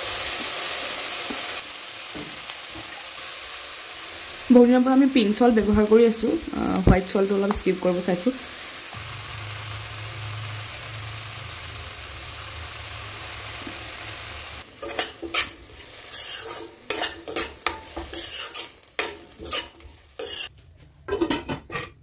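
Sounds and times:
greens sizzling in oil: 0:00.0 - 0:20.5
spatula scraping a pan: 0:14.8 - 0:20.5.

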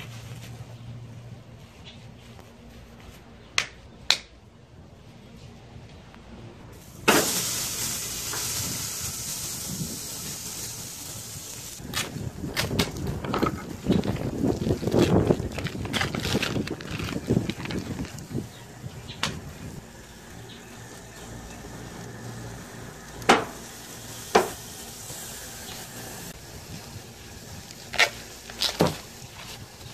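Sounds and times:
steak sizzling on grill: 0:06.8 - 0:12.3, 0:19.4 - 0:29.9.

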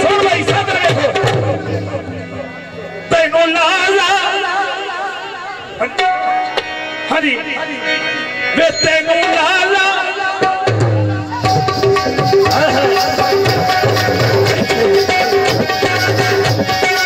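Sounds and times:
hand drums beating: 0:00.0 - 0:02.5, 0:10.6 - 0:17.0
wavering instrumental tones: 0:01.2 - 0:03.6, 0:05.2 - 0:17.0.

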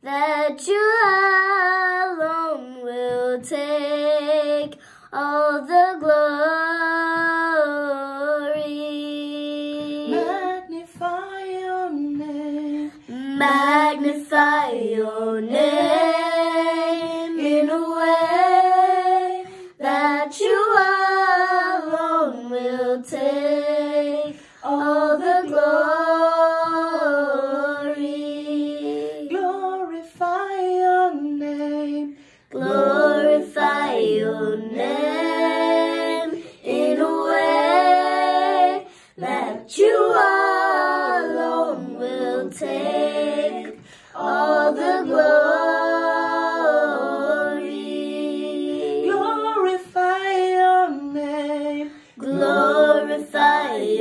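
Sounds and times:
girl singing unaccompanied: 0:00.0 - 0:54.0.

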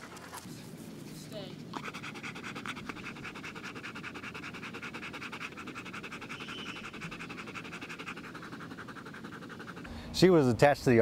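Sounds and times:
dog panting rapidly: 0:01.6 - 0:10.0.

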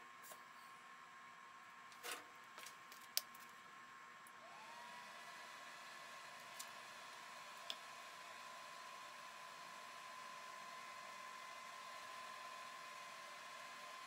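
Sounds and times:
machine fan whine and hum: 0:00.0 - 0:14.0.

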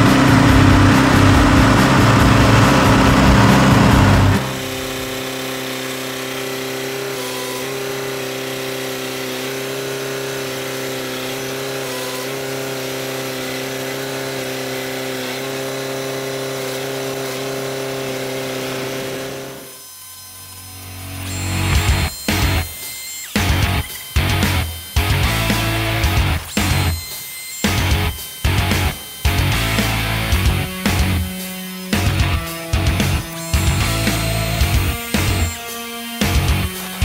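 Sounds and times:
heavy machinery engine running: 0:00.0 - 0:07.1, 0:20.8 - 0:37.0.

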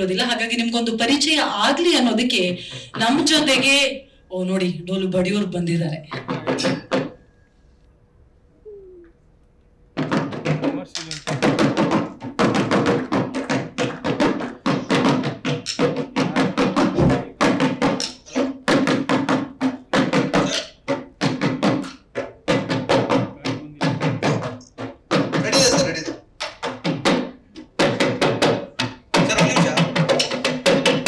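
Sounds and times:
drum beaten with sticks: 0:06.1 - 0:07.2, 0:09.9 - 0:31.0.

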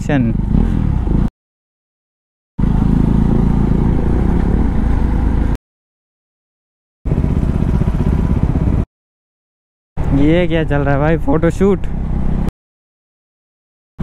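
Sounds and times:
motorcycle engine running: 0:02.6 - 0:05.6, 0:07.1 - 0:08.9.

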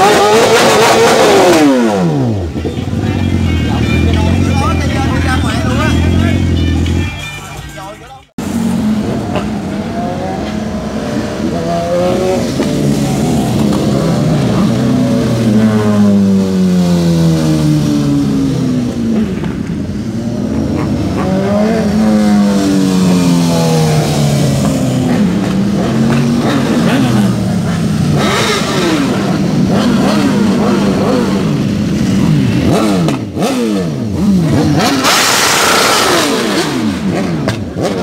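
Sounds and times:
motorcycles revving past: 0:08.5 - 0:38.0.

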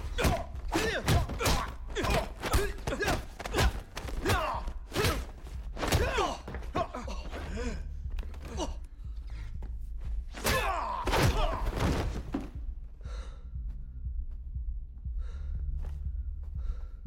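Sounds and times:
punches landing as thuds: 0:00.0 - 0:07.4, 0:10.3 - 0:12.6
people grunting and groaning: 0:00.0 - 0:09.1, 0:10.3 - 0:12.6.

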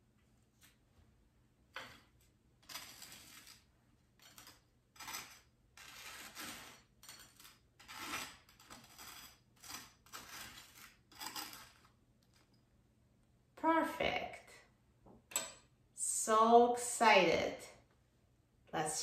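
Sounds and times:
knife scraping across toast: 0:04.2 - 0:11.9.

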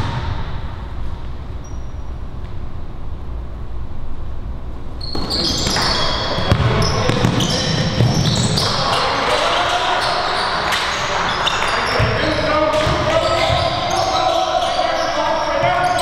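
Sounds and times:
low gym hum: 0:00.0 - 0:11.8
basketball bouncing: 0:05.0 - 0:08.8, 0:12.0 - 0:13.9
sneakers squeaking on hardwood: 0:05.0 - 0:09.2, 0:09.8 - 0:16.0.

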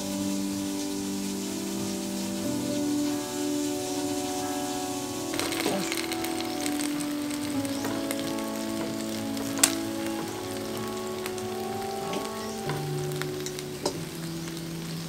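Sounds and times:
chicken sizzling in a pan: 0:00.0 - 0:15.0
chopsticks clicking against pan: 0:05.4 - 0:14.7.

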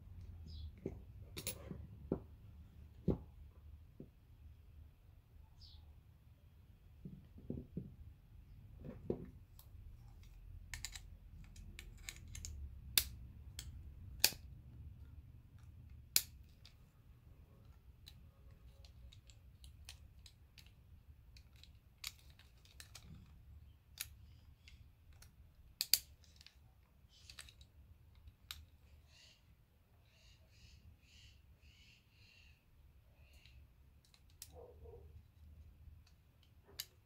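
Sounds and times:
lock and key clicking: 0:10.2 - 0:14.5.

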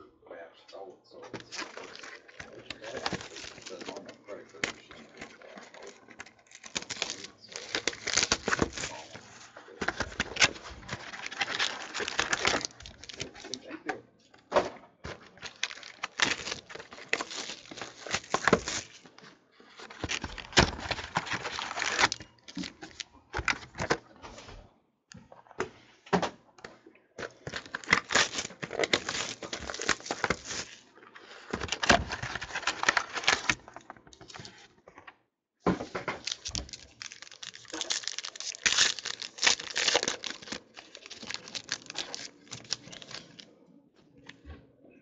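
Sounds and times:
cardboard and cards clicking: 0:01.2 - 0:13.6, 0:15.0 - 0:19.2, 0:19.8 - 0:24.0, 0:27.3 - 0:30.8, 0:31.5 - 0:34.5, 0:36.0 - 0:43.4
foil wrappers crinkling and tearing: 0:01.3 - 0:13.7, 0:15.1 - 0:23.9, 0:27.3 - 0:34.6, 0:36.1 - 0:43.4.

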